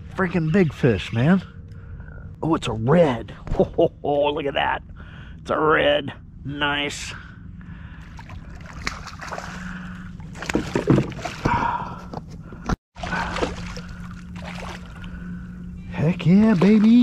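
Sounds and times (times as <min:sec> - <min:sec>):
water sloshing: 0:08.0 - 0:11.8, 0:13.0 - 0:15.6, 0:16.2 - 0:17.0
fish thrashing and splashing: 0:08.1 - 0:11.6, 0:13.0 - 0:15.1.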